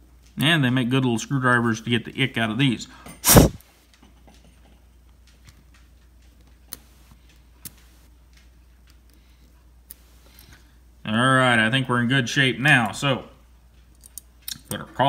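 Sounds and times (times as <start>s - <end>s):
handling noise: 3.2s - 3.6s.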